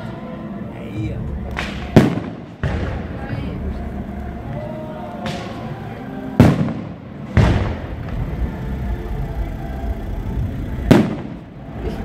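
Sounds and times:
firework shells bursting: 0:06.4 - 0:08.6.

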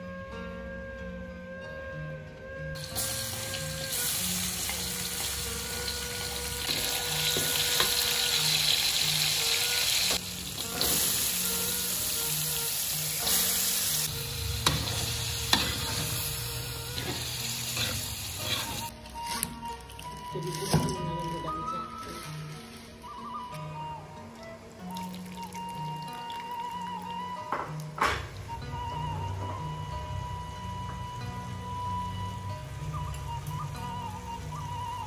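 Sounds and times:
faint background music: 0:00.0 - 0:35.0
vegetables sizzling in hot oil: 0:02.8 - 0:18.9
metal spatula scraping pan: 0:14.6 - 0:16.2, 0:16.9 - 0:18.9.

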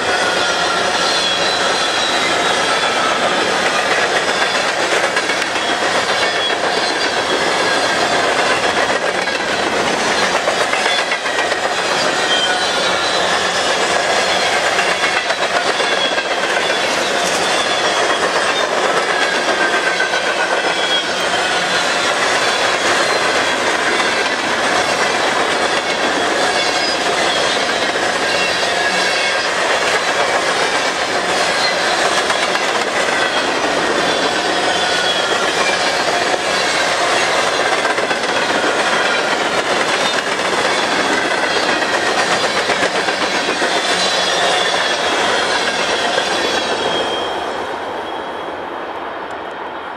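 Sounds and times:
high wheel squeals: 0:00.0 - 0:37.6, 0:38.4 - 0:48.6
steel wheels rumbling on rail: 0:00.0 - 0:49.9
clicking over rail joints: 0:03.1 - 0:34.1.

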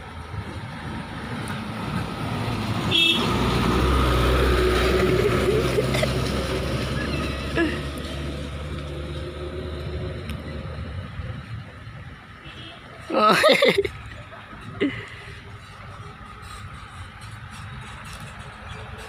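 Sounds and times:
pickup truck driving past: 0:00.8 - 0:10.7.

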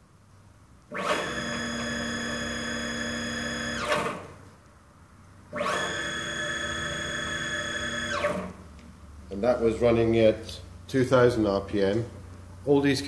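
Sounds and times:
stepper motor whine: 0:00.9 - 0:04.3, 0:05.5 - 0:08.6.

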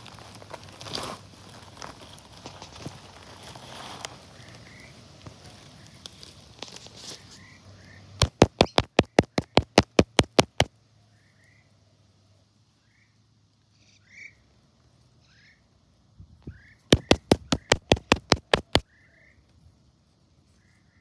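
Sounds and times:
rapid sharp clicks: 0:08.2 - 0:10.7, 0:16.9 - 0:18.8.

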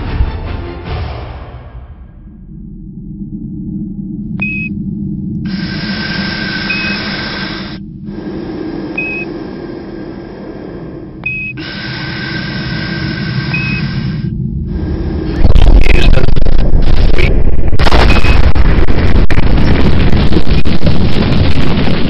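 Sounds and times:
loud rumble with crackles: 0:01.6 - 0:22.0
short high beeps: 0:04.4 - 0:04.7, 0:09.0 - 0:09.3
steady whistle: 0:05.5 - 0:07.8, 0:11.2 - 0:14.3
radio static: 0:05.5 - 0:10.9, 0:15.3 - 0:22.0.

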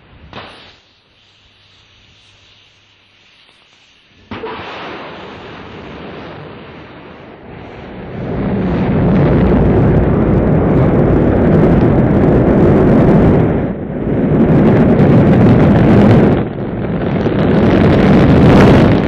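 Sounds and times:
hissing rush: 0:00.0 - 0:11.1
rocket engines roaring: 0:04.2 - 0:19.0.

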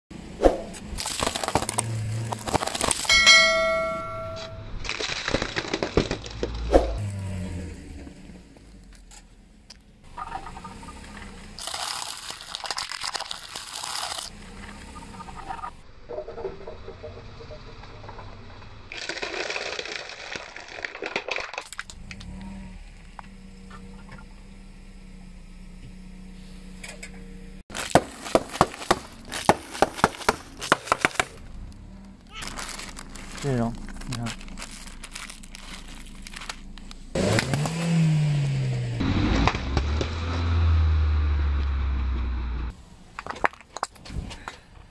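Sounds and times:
plastic egg carton crackling: 0:01.0 - 0:03.1, 0:04.8 - 0:06.6, 0:11.6 - 0:14.7, 0:18.9 - 0:22.0, 0:27.7 - 0:31.4, 0:32.2 - 0:37.7
tyre crushing chip bags: 0:01.0 - 0:03.2, 0:04.7 - 0:07.1, 0:11.6 - 0:14.3, 0:18.9 - 0:22.0, 0:27.7 - 0:31.4, 0:32.2 - 0:38.0
plastic lighters cracking under tyre: 0:27.7 - 0:37.8.

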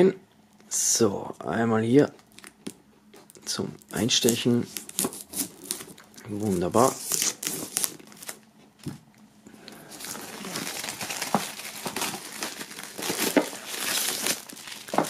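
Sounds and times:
plastic film crinkling: 0:02.2 - 0:08.4, 0:09.6 - 0:15.0.

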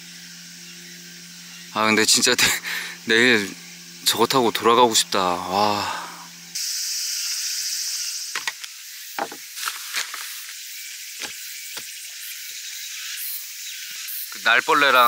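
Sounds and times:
steady high hiss: 0:00.0 - 0:15.0
knocks on wooden bench: 0:09.2 - 0:09.4.

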